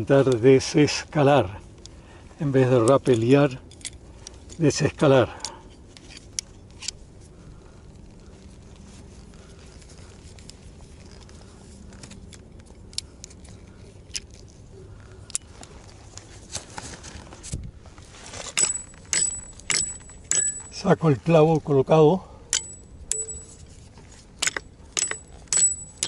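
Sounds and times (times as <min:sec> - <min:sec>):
boots and hardware scraping rock: 0:15.4 - 0:21.9, 0:22.6 - 0:26.0
metallic clinking with ringing: 0:18.5 - 0:21.0, 0:22.5 - 0:26.0.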